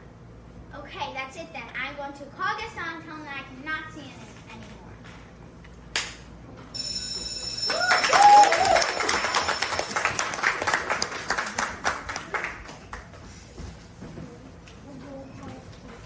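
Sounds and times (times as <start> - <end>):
high steady tone: 6.8 - 10.5
audience applauding: 7.6 - 13.2
cheers and whoops: 7.7 - 9.5.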